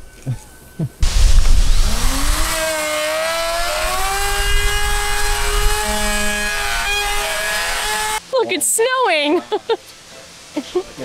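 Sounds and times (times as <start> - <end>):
electric router whining: 1.0 - 8.2
router bit cutting fiberglass: 1.0 - 8.2.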